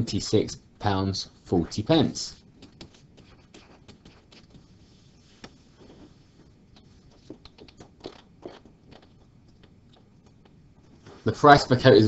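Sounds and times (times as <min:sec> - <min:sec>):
stylus tapping graphics tablet: 0:02.4 - 0:11.0.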